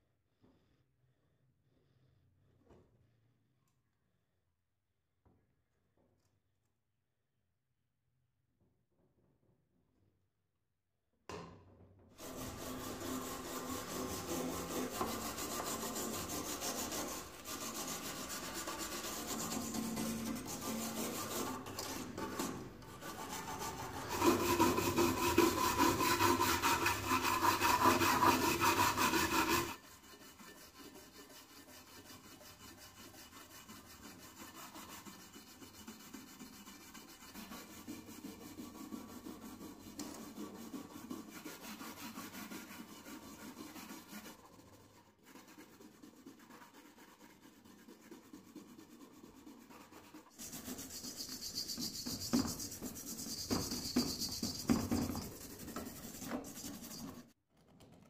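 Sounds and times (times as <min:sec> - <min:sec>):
brush scrubbing metal: 0:12.2 - 0:57.4.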